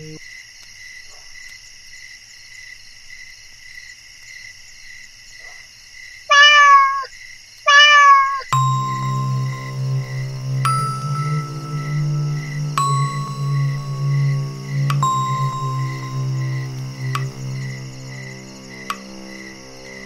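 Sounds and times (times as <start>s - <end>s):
crickets chirring: 0.0s - 7.7s, 8.4s - 20.0s
cat meowing: 6.3s - 7.1s, 7.7s - 8.5s.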